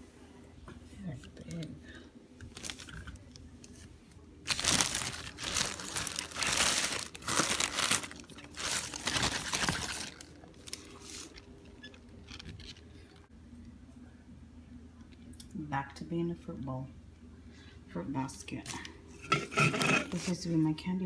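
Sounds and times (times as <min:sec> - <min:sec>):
plastic crinkling and rustling: 0:02.4 - 0:13.3.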